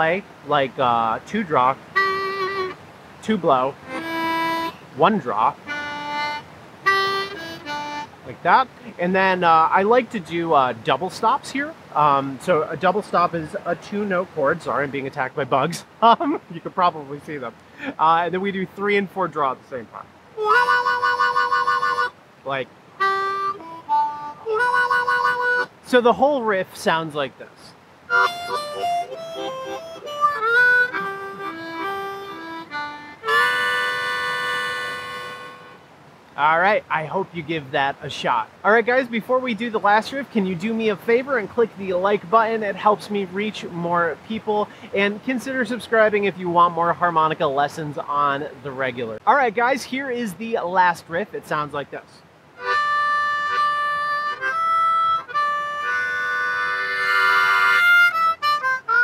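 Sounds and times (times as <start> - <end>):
harmonica playing blues riff: 1.6 - 9.0, 20.4 - 26.2, 28.1 - 35.9, 52.6 - 59.0.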